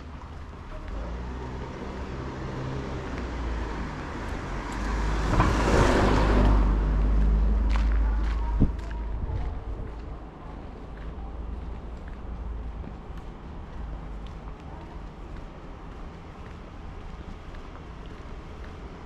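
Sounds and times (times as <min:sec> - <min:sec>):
car driving past: 0:00.7 - 0:09.2.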